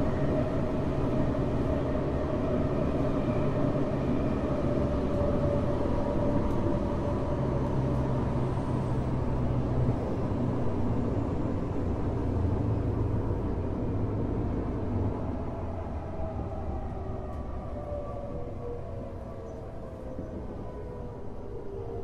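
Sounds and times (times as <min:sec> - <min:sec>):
wheels rumbling on rail: 0:00.0 - 0:22.0.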